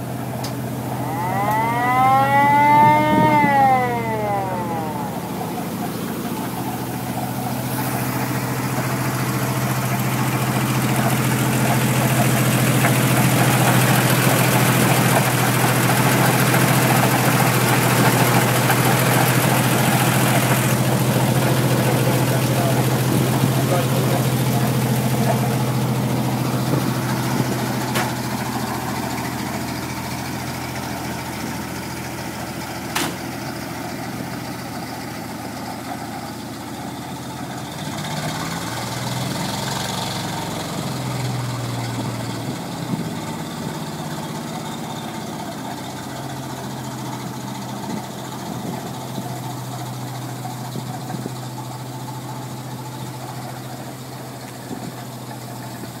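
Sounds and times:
truck engine idling: 0.0 - 56.0.

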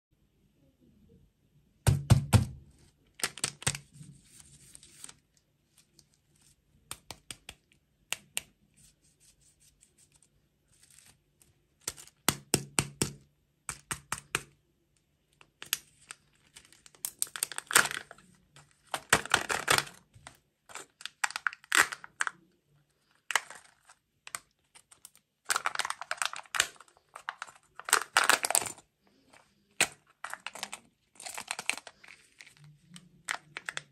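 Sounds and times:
foil wrapper crinkling and tearing: 3.1 - 7.1, 10.1 - 11.2, 15.5 - 22.4, 23.0 - 33.9.

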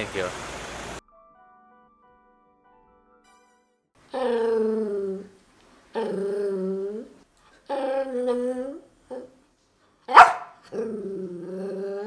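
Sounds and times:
dog whining moans: 4.1 - 9.4, 10.6 - 12.0
dog barking sharply: 10.1 - 10.6.

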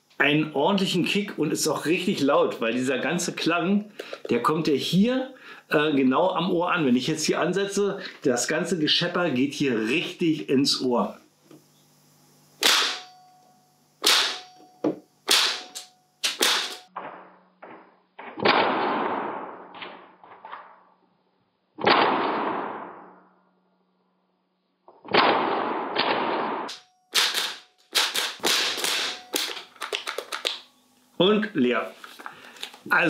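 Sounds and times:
airsoft rifle firing: 12.6 - 13.2, 14.0 - 14.6, 15.2 - 20.8, 21.8 - 23.2, 25.0 - 30.4.

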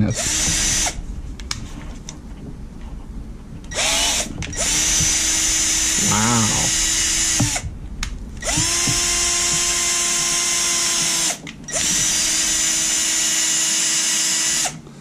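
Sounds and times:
cordless drill motor whine: 0.1 - 1.0, 3.7 - 7.6, 8.4 - 14.8.

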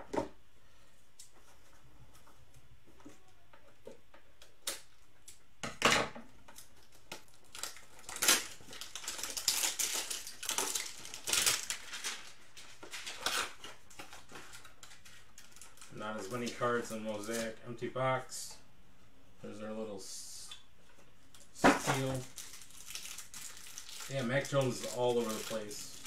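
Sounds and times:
foil wrappers crinkling: 6.5 - 17.6, 21.8 - 26.0
sharp foil crackle: 6.6 - 16.6, 21.9 - 26.0.

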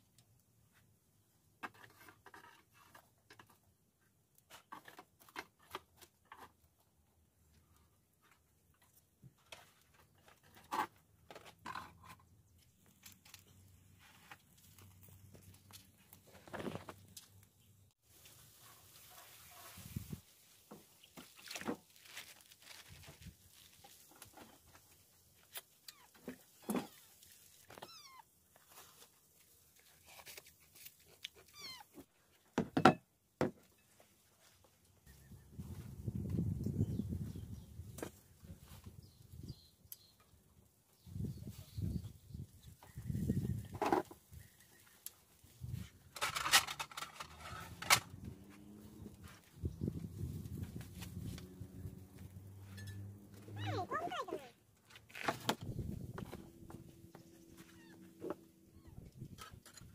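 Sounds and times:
cat meowing: 27.8 - 28.2.

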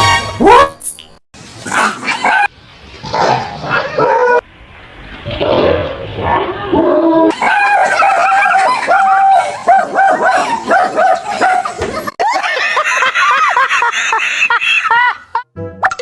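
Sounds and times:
people laughing loudly: 7.3 - 15.5.

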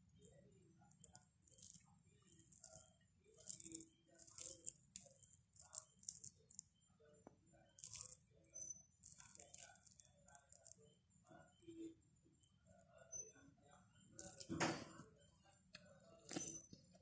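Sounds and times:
fingers kneading rice squishing: 0.8 - 8.3, 8.9 - 10.9.

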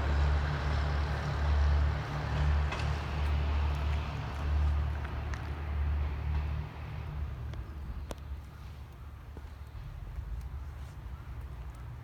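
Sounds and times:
diesel train rumble: 0.0 - 8.9.

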